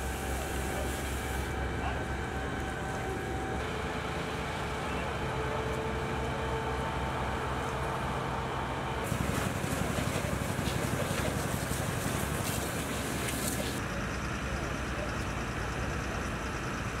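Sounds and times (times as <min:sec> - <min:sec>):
fire hose spraying water: 0:00.0 - 0:01.9, 0:09.0 - 0:13.8
fire engine pump humming: 0:00.0 - 0:17.0.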